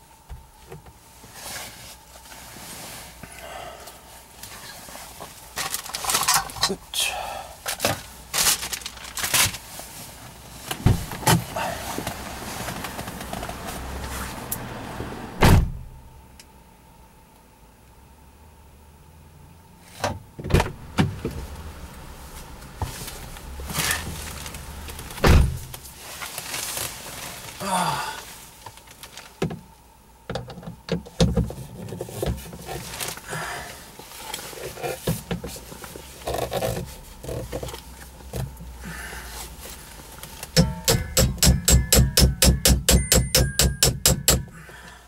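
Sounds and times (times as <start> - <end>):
fast metallic clicks: 40.6 - 44.5.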